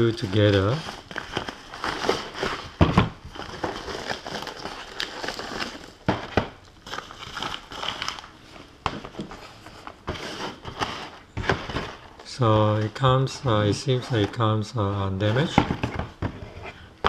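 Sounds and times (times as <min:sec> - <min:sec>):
foam packing bag crinkling: 0:00.0 - 0:06.1, 0:06.8 - 0:08.6.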